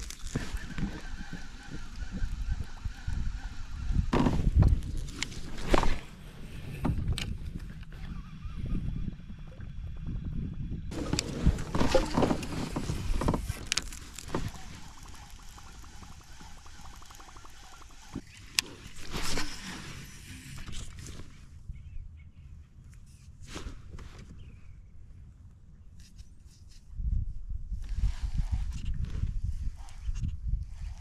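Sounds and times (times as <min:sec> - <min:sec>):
water sloshing and splashing: 0:10.9 - 0:18.2.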